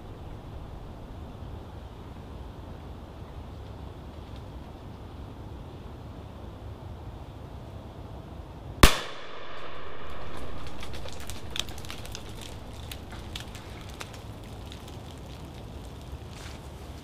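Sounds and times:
shotgun shot: 8.8s - 12.3s
faint clicks and snaps: 10.4s - 16.1s.

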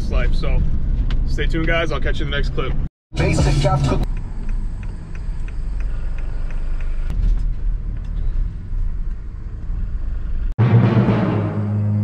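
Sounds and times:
engine and road rumble: 0.0s - 12.0s
faint regular ticking: 4.0s - 7.1s.

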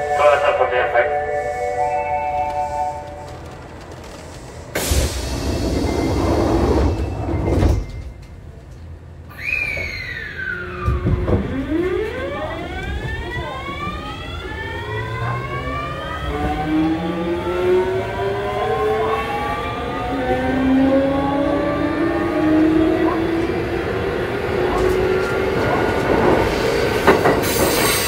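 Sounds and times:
train inverter tones: 0.0s - 28.0s
rumble of motors and wheels: 3.0s - 9.0s.

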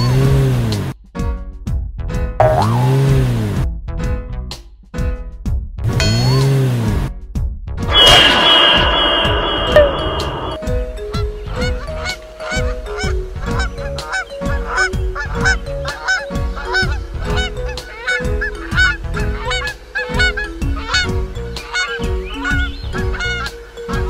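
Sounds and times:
bouncy cartoon tune: 2.4s - 3.3s.

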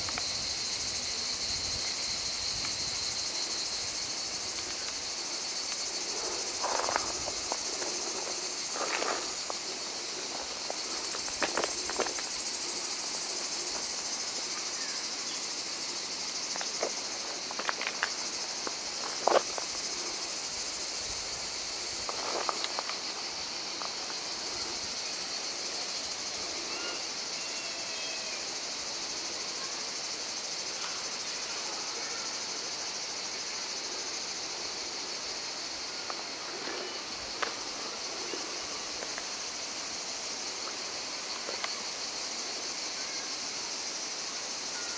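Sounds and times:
cicadas buzzing: 0.0s - 44.9s
footsteps on ballast stones: 4.4s - 12.5s, 16.5s - 19.8s, 22.0s - 24.2s, 36.0s - 39.4s.

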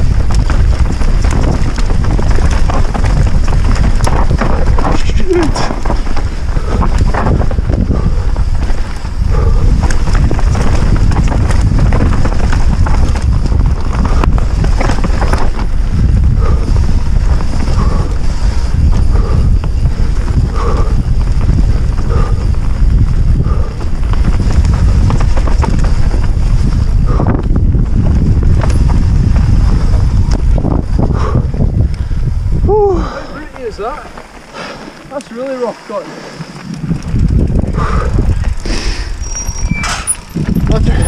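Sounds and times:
bike knocking and rattling: 0.0s - 41.0s
tyres on dirt: 0.0s - 41.0s
wind rumble on microphone: 0.0s - 41.0s.

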